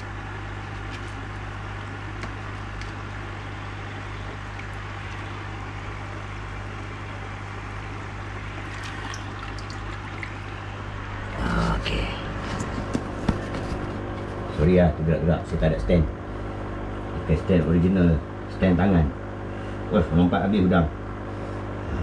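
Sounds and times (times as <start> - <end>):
aquarium pump hum: 0.0 - 22.0
water trickling: 8.4 - 11.5.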